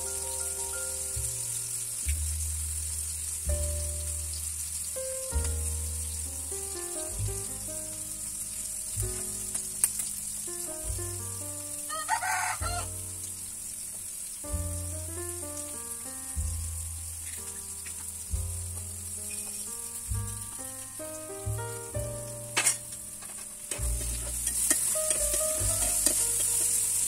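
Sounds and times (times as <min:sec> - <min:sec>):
background music: 0:00.0 - 0:27.0
vegetables sizzling in a pan: 0:00.0 - 0:27.0
rooster crowing: 0:11.8 - 0:13.0.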